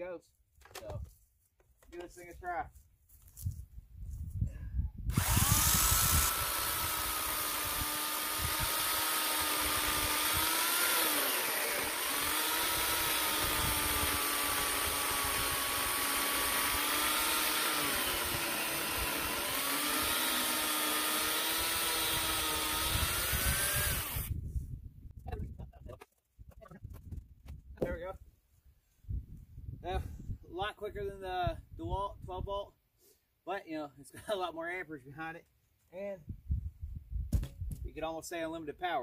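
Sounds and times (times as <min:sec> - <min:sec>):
electric chainsaw cutting log: 0:05.1 - 0:24.4.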